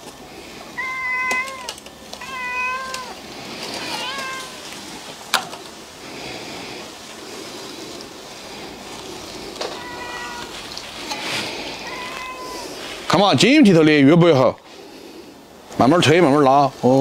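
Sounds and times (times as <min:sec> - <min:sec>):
cat meowing: 0:00.7 - 0:04.8, 0:09.5 - 0:13.0.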